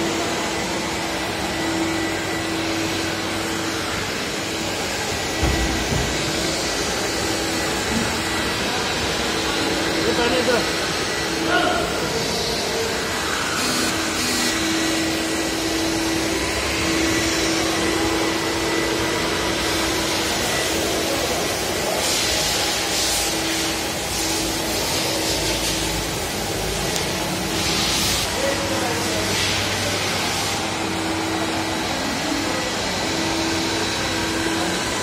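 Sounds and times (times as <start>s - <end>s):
faint suction motor hum: 0.0s - 21.1s
floor scrubber whirring hiss: 0.0s - 35.0s.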